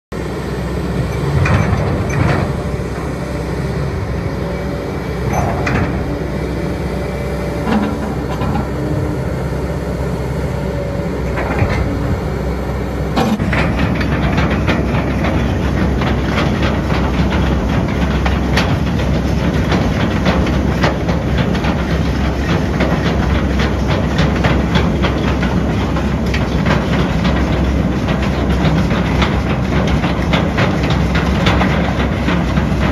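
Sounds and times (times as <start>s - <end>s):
diesel engine running: 0.1s - 32.9s
track chains clanking: 1.0s - 3.6s, 5.2s - 6.9s.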